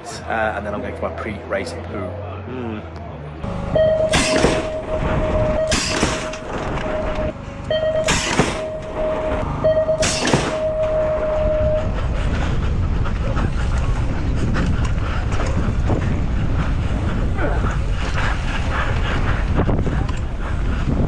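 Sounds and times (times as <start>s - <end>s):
wind gusts on microphone: 10.9s - 21.0s
bike rolling on dirt: 11.4s - 21.0s.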